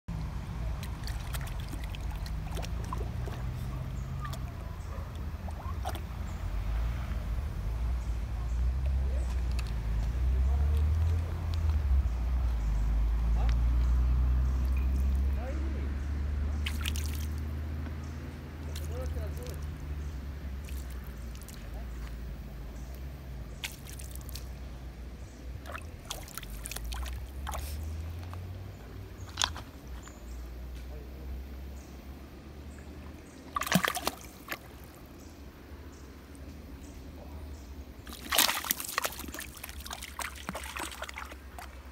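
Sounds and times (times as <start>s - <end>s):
river water trickling: 0.1s - 41.9s
dog paws splashing in water: 0.6s - 6.4s, 16.6s - 18.0s, 18.6s - 20.0s, 20.6s - 21.9s, 23.6s - 24.6s, 25.6s - 28.5s, 33.0s - 35.0s, 38.0s - 41.9s.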